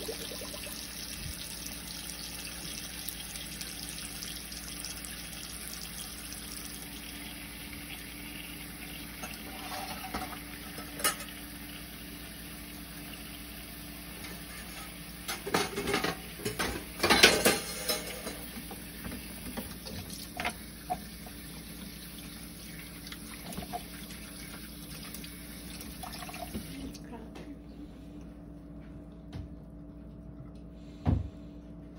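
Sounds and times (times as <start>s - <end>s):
knocks and clatter in a pot: 9.2s - 11.4s, 14.6s - 21.1s.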